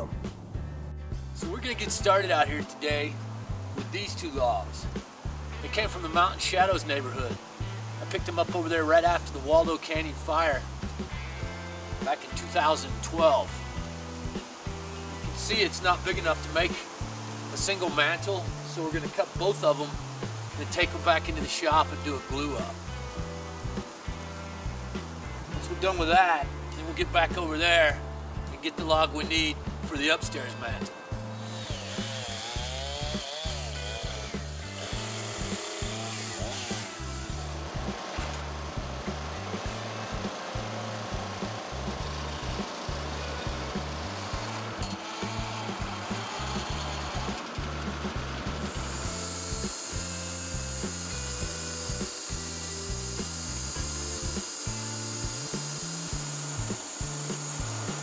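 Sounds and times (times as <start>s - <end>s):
background music with steady beat: 0.0s - 58.0s
chainsaw cutting through log: 31.2s - 58.0s.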